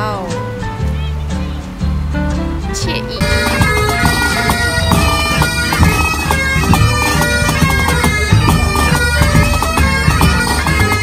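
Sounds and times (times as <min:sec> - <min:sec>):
drums beating: 0:00.0 - 0:11.0
bagpipes playing a tune: 0:03.0 - 0:11.0.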